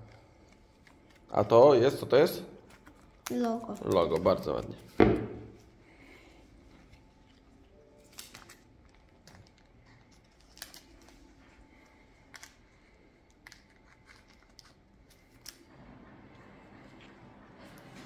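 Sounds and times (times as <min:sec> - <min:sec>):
plastic sleeves crinkling: 0:00.1 - 0:05.0, 0:06.8 - 0:15.6.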